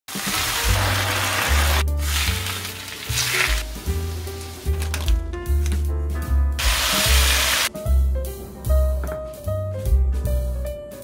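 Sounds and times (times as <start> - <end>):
food sizzling in hot oil: 0.1 - 4.7, 6.6 - 7.7.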